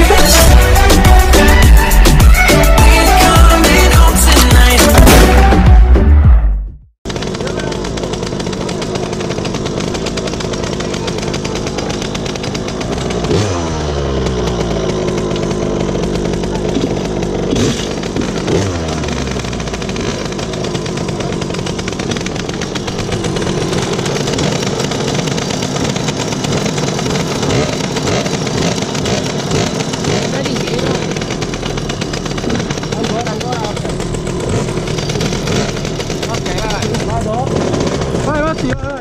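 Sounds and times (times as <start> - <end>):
two-stroke engine idling and revving: 0.0 - 6.5, 7.1 - 39.0.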